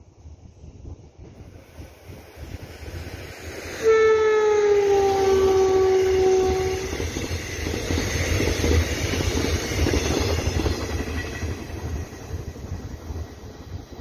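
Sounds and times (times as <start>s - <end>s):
train horn sliding down: 3.8s - 7.0s
train wheels clattering on rails: 5.3s - 14.0s.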